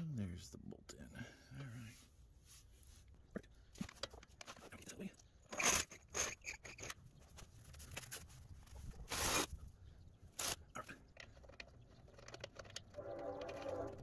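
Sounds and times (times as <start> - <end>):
metal parts scraping and clicking: 5.4 - 8.3, 11.2 - 14.0
steady horn-like tone: 13.0 - 14.0.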